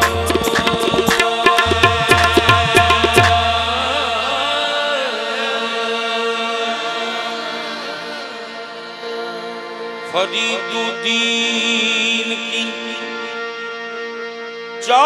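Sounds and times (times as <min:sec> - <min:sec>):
tabla strokes: 0:00.0 - 0:03.8
person singing: 0:00.0 - 0:13.4
harmonium chords: 0:00.0 - 0:15.0.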